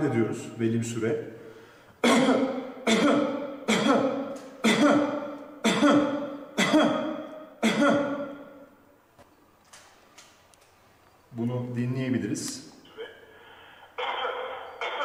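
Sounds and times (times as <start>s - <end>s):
person coughing: 2.0s - 8.5s, 12.9s - 13.4s.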